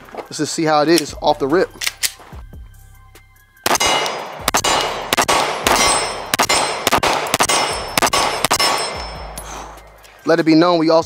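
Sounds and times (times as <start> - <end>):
pistol shots: 3.6 - 9.4
bullets clanging on steel target: 3.7 - 9.8.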